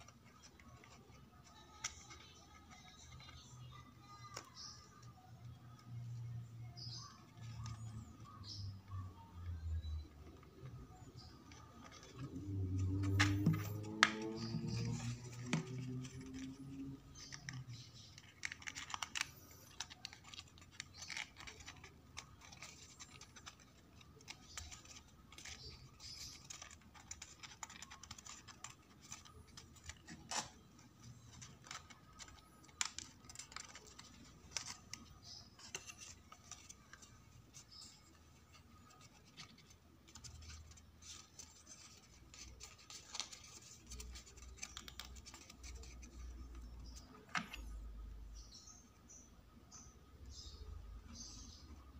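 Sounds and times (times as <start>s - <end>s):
small sharp paper clicks: 0.0s - 5.2s, 11.2s - 47.8s
card paper rustling and crinkling: 9.8s - 47.8s.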